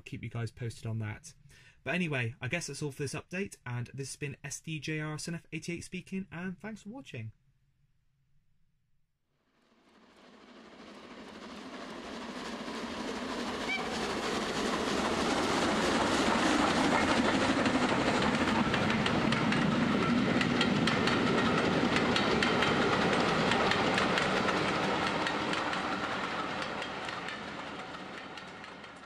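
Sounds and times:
train wheels clicking over rail joints: 11.4 - 29.0.

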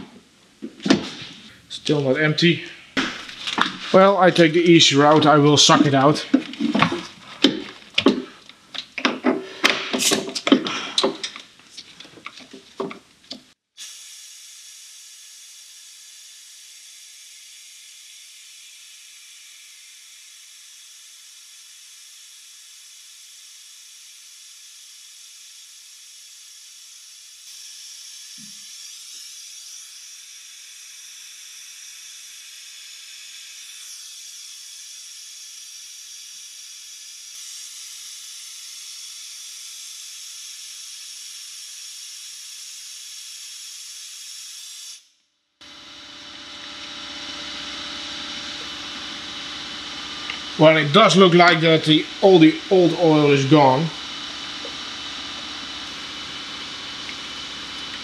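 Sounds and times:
vacuum pump hissing: 0.0 - 14.2, 45.6 - 58.0.

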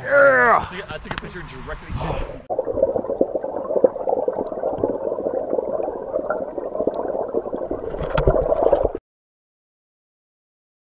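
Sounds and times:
muffled bubbling water underwater: 2.5 - 9.0.

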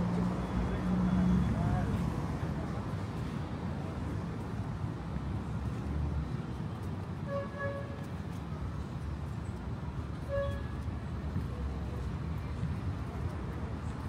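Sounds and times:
street traffic rumble: 0.0 - 14.0
car horn beeps: 7.3 - 8.0.

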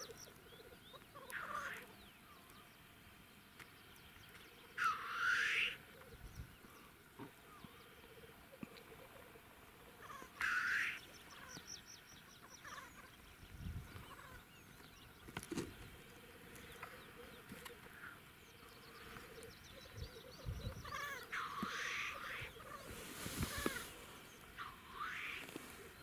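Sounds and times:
grouse hissing chuff: 10.0 - 11.0, 16.2 - 26.0
grouse bubbling song: 16.6 - 26.0.

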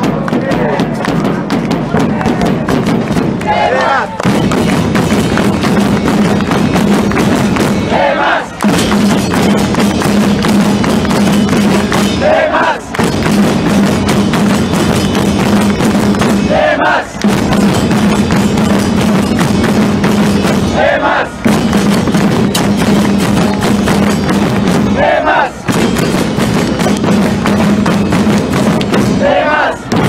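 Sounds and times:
drumming: 0.0 - 30.0
crowd chanting in unison: 3.4 - 4.2, 7.7 - 8.6, 11.8 - 13.0, 16.3 - 17.5, 20.6 - 21.5, 24.8 - 25.7, 29.0 - 30.0.

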